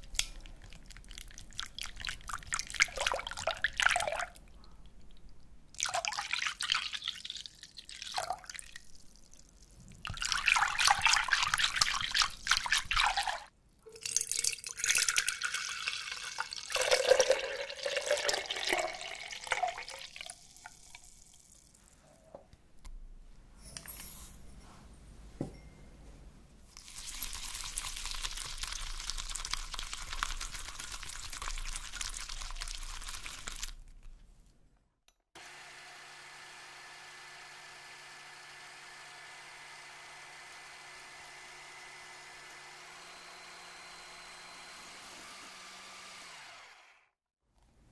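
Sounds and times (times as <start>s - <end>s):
whisk sloshing liquid: 10.0s - 13.5s, 26.8s - 33.8s.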